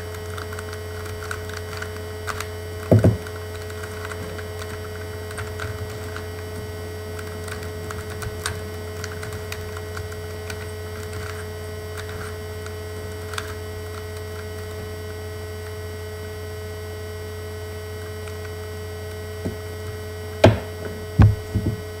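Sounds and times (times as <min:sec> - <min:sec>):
steady electrical hum: 0:00.0 - 0:22.0
loud knocks: 0:02.9 - 0:03.2, 0:20.4 - 0:21.8.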